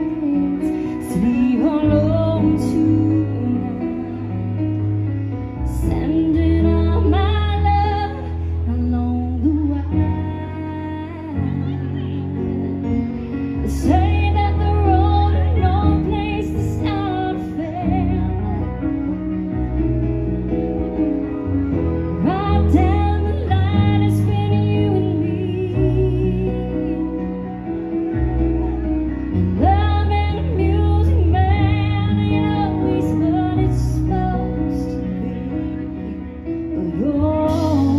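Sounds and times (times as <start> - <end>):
woman singing: 0.0 - 19.8, 22.0 - 27.9, 29.4 - 37.9
live band playing: 0.0 - 37.9.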